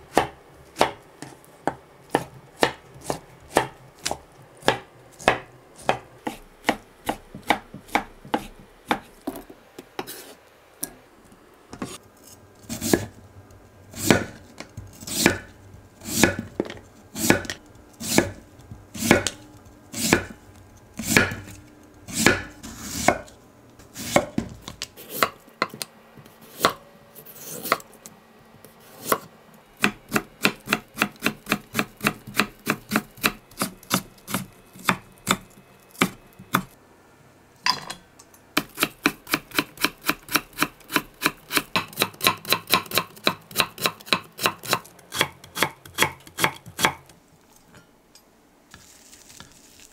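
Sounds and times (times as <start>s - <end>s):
knife chopping on wooden board: 0.1s - 9.1s, 12.7s - 13.1s, 14.0s - 18.4s, 19.0s - 19.4s, 20.0s - 20.4s, 21.0s - 23.3s, 24.0s - 25.8s, 26.5s - 26.8s, 29.0s - 36.7s, 38.6s - 47.0s.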